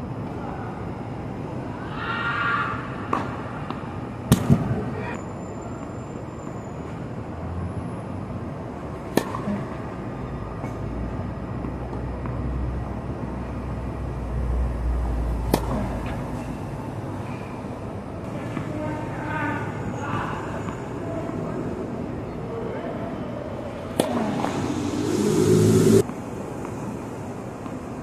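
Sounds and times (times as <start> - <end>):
tennis racket hitting ball: 23.9 - 24.8
steady low rumble: 24.1 - 26.1.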